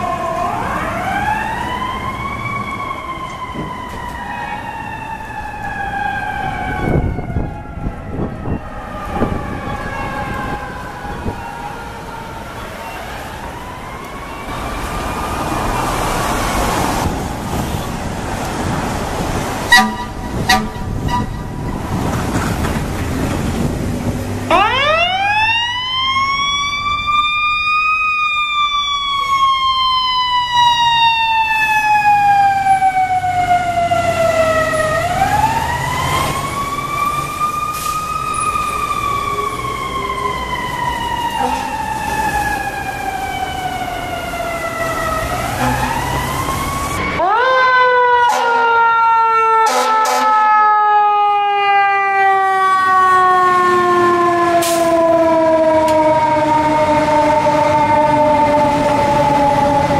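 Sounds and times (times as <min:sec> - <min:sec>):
sirens wailing: 0:00.0 - 0:59.9
traffic and diesel engines: 0:00.0 - 0:59.9
short horn blasts: 0:19.7 - 0:21.6, 0:49.7 - 0:50.3.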